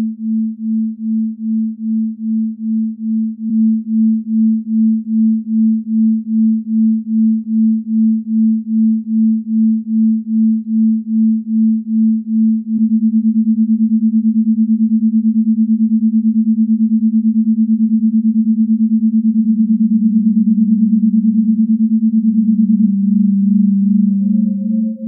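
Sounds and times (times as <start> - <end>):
lower synth tone: 0.0 - 25.0
pulsing low synth tone: 0.0 - 25.0
high held synth tone: 22.5 - 25.0.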